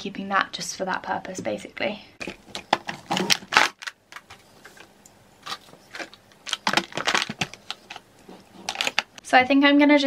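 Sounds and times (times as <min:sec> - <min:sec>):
plastic bottles clattering: 0:02.2 - 0:09.2.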